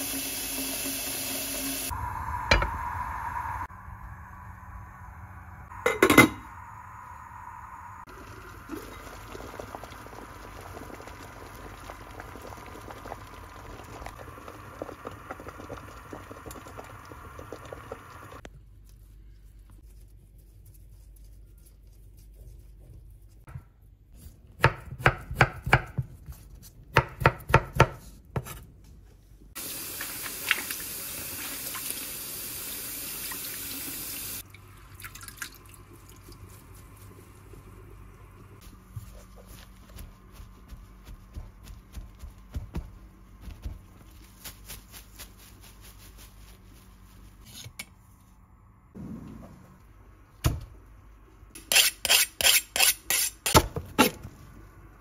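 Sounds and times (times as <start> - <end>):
pot boiling with bubbling: 5.6 - 18.5, 34.2 - 44.6.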